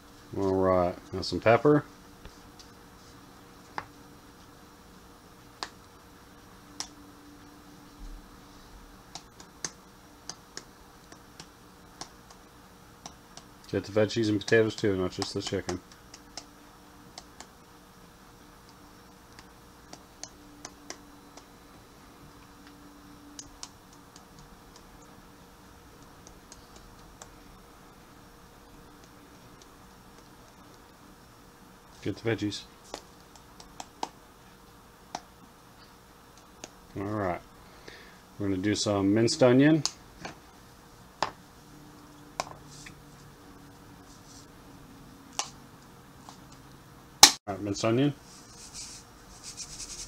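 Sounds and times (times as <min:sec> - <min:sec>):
faint steady hum: 0:00.0 - 0:50.0
soft rattling of shaken flakes: 0:48.2 - 0:50.0.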